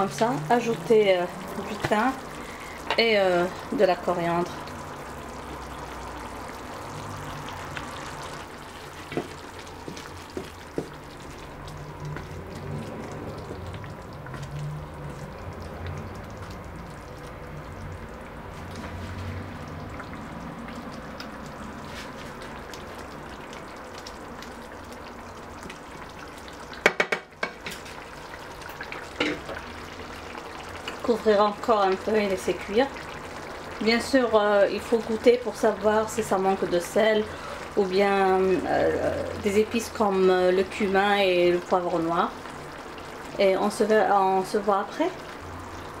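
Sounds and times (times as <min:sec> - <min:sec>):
food sizzling in a frying pan: 0:00.0 - 0:46.0
wooden spatula stirring: 0:08.6 - 0:16.6, 0:21.3 - 0:23.1
sharp knocks on pan: 0:26.8 - 0:27.6.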